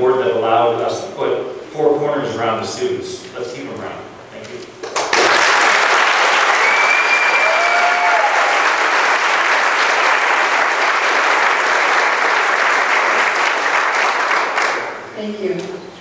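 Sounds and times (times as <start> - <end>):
audience applauding: 4.8 - 15.1.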